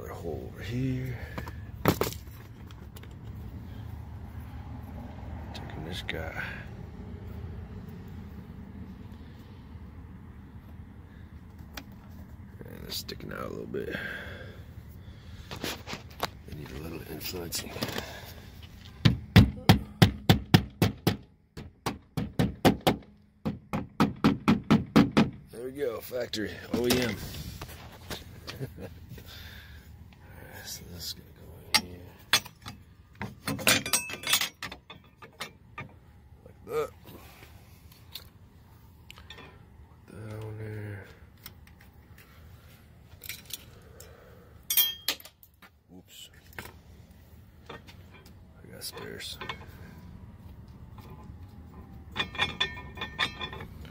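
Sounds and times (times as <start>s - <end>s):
hammer tapping plastic anchors: 19.0s - 25.4s
metal hardware clicking and clinking: 31.7s - 36.0s, 39.0s - 40.5s, 44.7s - 45.6s, 47.6s - 50.0s, 50.8s - 53.9s.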